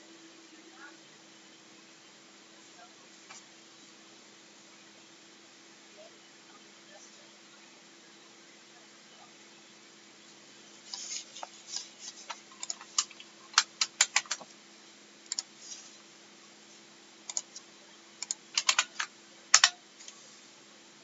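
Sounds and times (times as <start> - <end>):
faint electrical hum: 0.0 - 21.0
typing on computer keyboard: 15.3 - 15.5, 17.3 - 17.6, 18.2 - 19.8.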